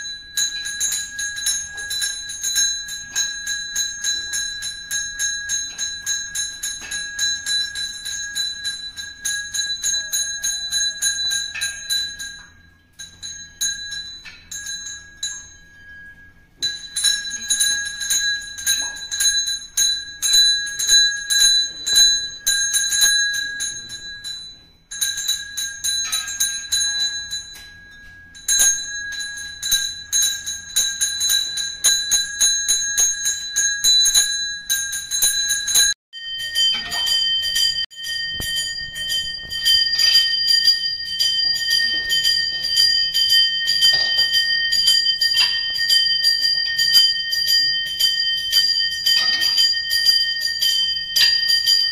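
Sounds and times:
hand bell rung rapidly: 0:00.0 - 0:51.9
second bell ringing: 0:00.0 - 0:51.9.

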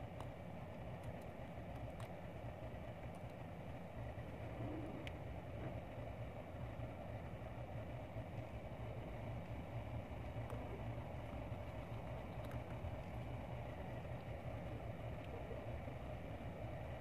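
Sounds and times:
motor running low rumble: 0:00.0 - 0:17.0
faint clicks: 0:00.2 - 0:02.2, 0:03.0 - 0:03.4, 0:11.8 - 0:13.2.

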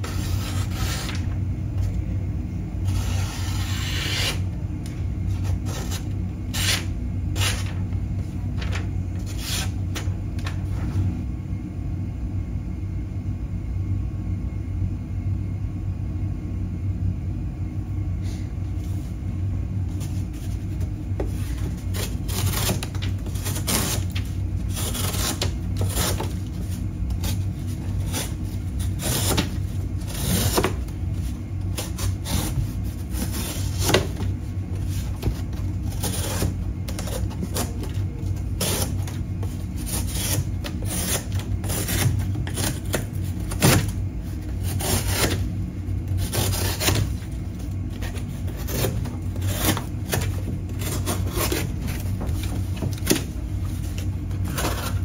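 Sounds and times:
knife slicing cardboard: 0:00.0 - 0:01.3, 0:02.9 - 0:04.4, 0:05.3 - 0:07.7, 0:09.2 - 0:10.1, 0:20.1 - 0:55.0
cardboard rustling: 0:07.4 - 0:11.1, 0:19.9 - 0:55.0.

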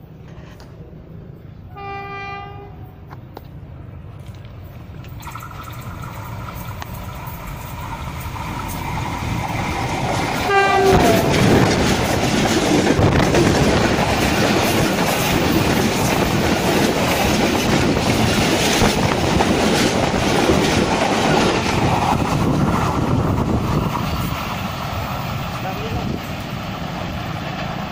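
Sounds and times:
diesel train passing: 0:00.0 - 0:27.9
train horn blast: 0:01.7 - 0:02.9, 0:10.4 - 0:11.5
wheels clattering over rail joints: 0:04.2 - 0:27.9.

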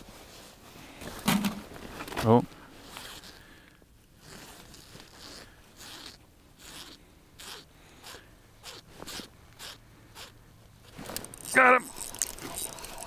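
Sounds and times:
clothing rustling: 0:00.0 - 0:03.5.

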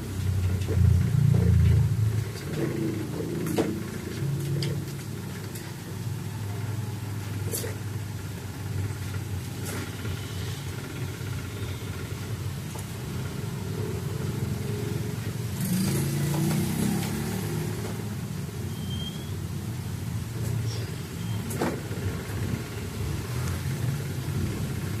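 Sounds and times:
low background rumble: 0:00.0 - 0:05.3.

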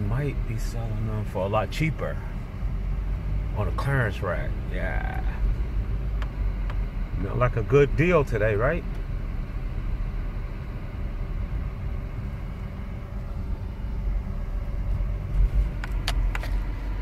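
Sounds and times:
car engine and tyres rumble: 0:00.0 - 0:17.0
sharp clicks: 0:15.8 - 0:16.6.

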